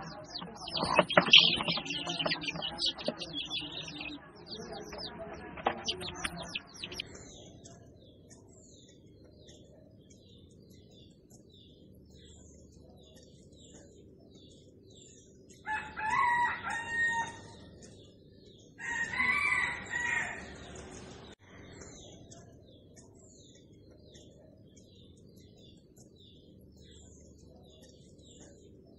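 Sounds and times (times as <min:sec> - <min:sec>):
small birds chirping: 0:00.0 - 0:28.9
rooster crowing: 0:15.6 - 0:17.6, 0:18.8 - 0:20.8.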